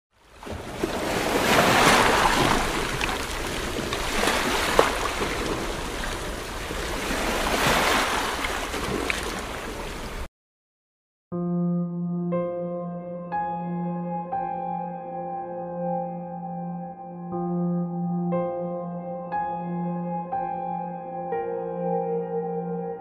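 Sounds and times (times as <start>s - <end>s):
waves breaking on beach: 0.2s - 10.3s.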